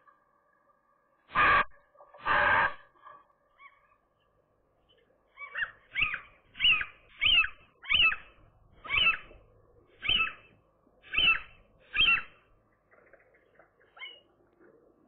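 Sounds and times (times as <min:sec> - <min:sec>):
gull calling: 0:05.3 - 0:09.4, 0:10.0 - 0:10.5, 0:11.1 - 0:12.4.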